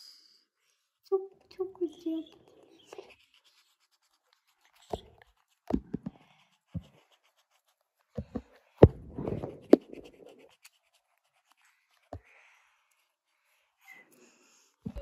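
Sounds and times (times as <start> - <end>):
marker rubbing on paper: 1.8 - 13.1.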